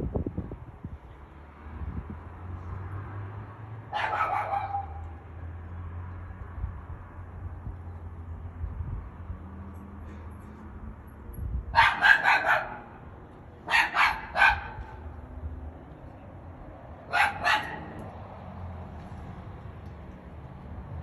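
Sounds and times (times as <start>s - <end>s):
dog barking: 3.9s - 5.1s, 11.7s - 13.0s, 13.6s - 15.0s, 17.1s - 18.1s.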